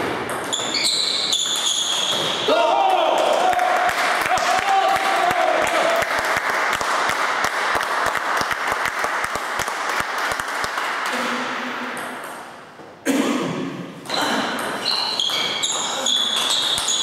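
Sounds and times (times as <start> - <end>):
spectators clapping: 2.9 - 11.5.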